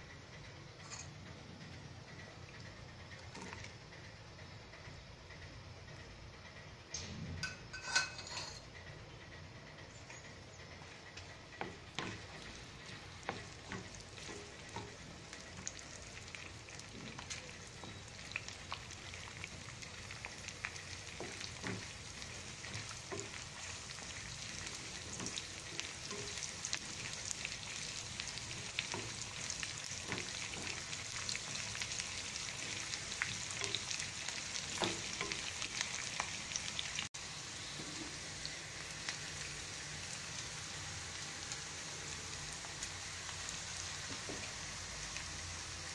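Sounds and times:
onions sizzling in hot oil: 10.8 - 45.9.

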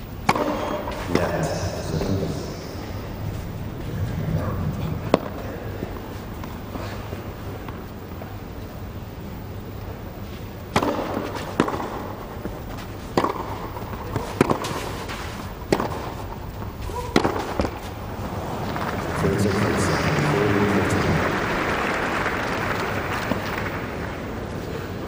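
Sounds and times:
tennis ball struck by rackets: 0.2 - 1.4, 5.0 - 6.0, 10.7 - 16.3, 17.1 - 18.0
crowd applause: 18.0 - 25.0.

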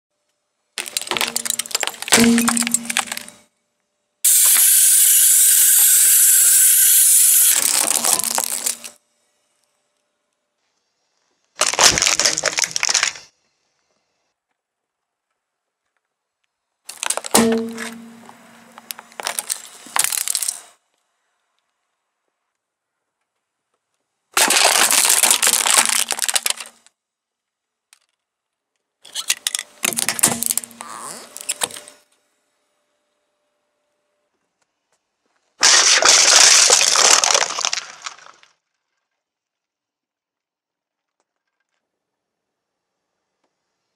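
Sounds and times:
camera crushed under car tyre: 0.8 - 3.3, 7.6 - 8.9, 11.6 - 13.2, 16.9 - 20.6, 24.4 - 26.8, 35.6 - 38.5
loud steady hiss: 4.3 - 8.8.

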